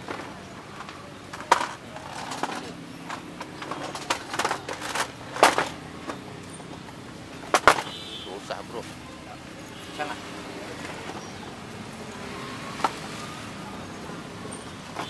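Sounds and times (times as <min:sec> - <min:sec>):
kitchen utensils clattering: 0:00.0 - 0:08.0.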